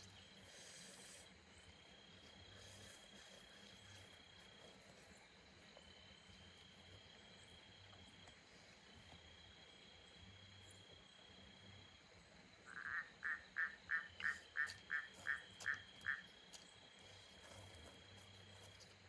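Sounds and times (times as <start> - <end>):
faint insect trill: 0.0 - 19.0
frog croaking: 12.6 - 16.6.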